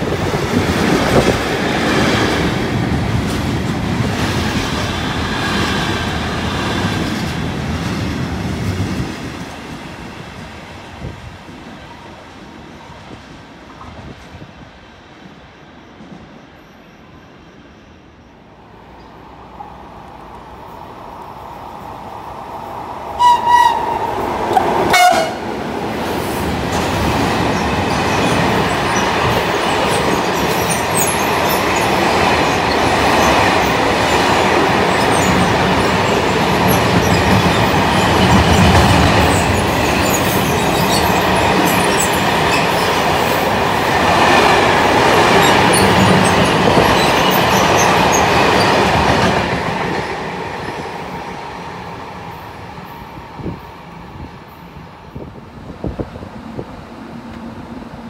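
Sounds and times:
train horn blasts: 23.2 - 24.1, 24.8 - 25.6.

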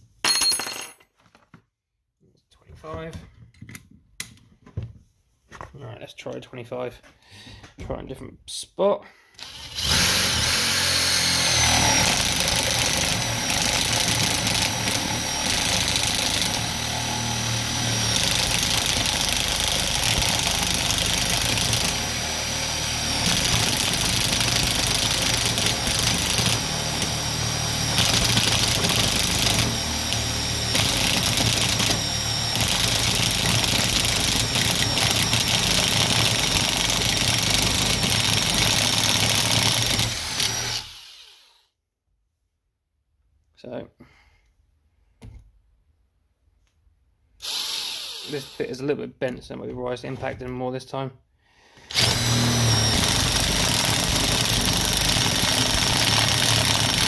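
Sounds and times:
impact driver boring through wood: 9.4 - 41.6, 47.4 - 48.7, 51.8 - 57.0.

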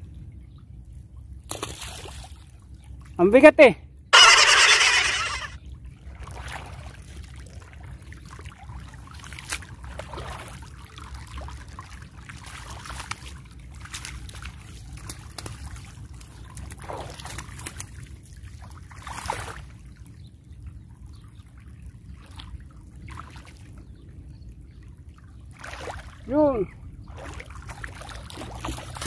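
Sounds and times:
shallow water trickling and splashing: 9.1 - 10.6, 25.2 - 26.3, 27.0 - 29.0.

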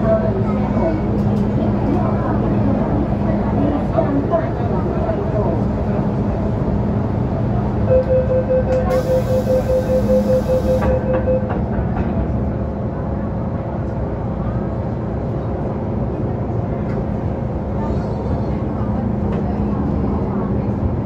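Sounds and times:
rapid door warning beeps: 7.9 - 11.6.

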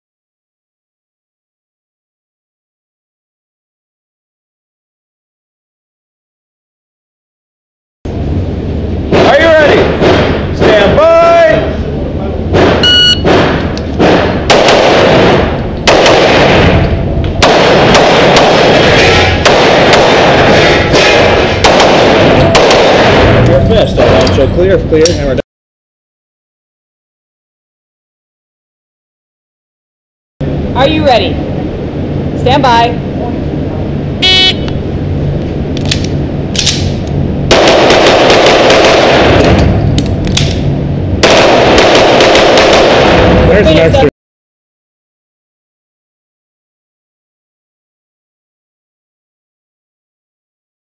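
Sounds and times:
pistol shots echoing indoors: 12.6 - 16.8, 17.4 - 23.4, 37.5 - 39.7, 41.2 - 43.3.

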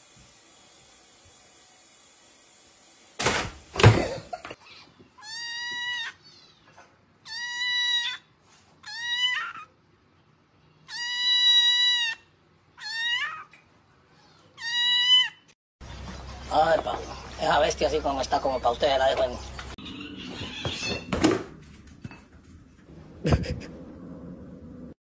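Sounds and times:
kitten meowing: 5.2 - 6.2, 7.2 - 8.2, 8.8 - 9.7, 10.9 - 12.2, 12.8 - 13.5, 14.6 - 15.4.

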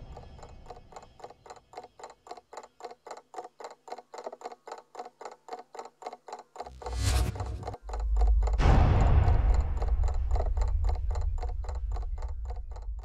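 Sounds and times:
clock-like ticking: 0.0 - 13.0
low rumbling: 6.7 - 13.0.

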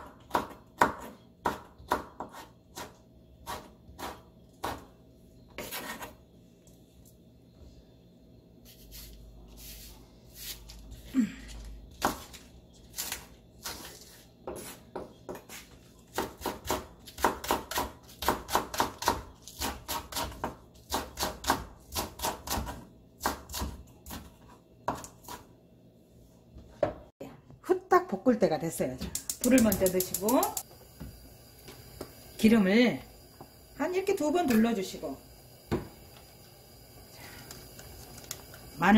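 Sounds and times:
knife chopping on cutting board: 0.0 - 4.9, 13.0 - 25.4.

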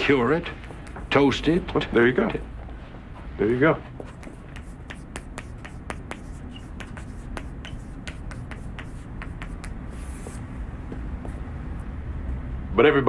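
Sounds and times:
low room hum: 0.0 - 13.0
chalk tapping on blackboard: 0.4 - 1.5, 4.0 - 11.4.

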